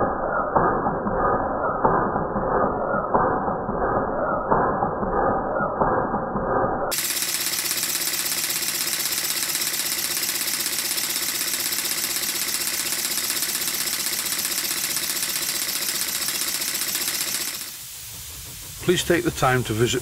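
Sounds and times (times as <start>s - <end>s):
model steam engine hissing: 6.9s - 20.0s.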